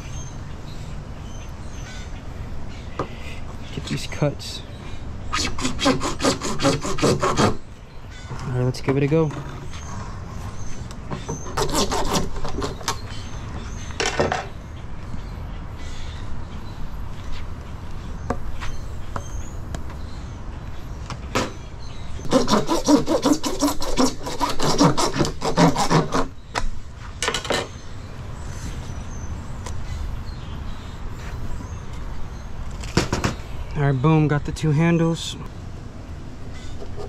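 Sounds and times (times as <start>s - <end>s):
hand saw cutting plastic pipe: 5.4s - 7.6s, 11.3s - 13.0s, 22.2s - 26.3s.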